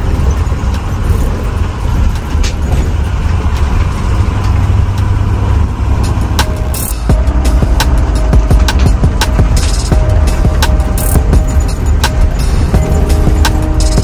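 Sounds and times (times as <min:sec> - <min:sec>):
engine and road rumble: 0:00.0 - 0:14.0
music: 0:05.9 - 0:14.0.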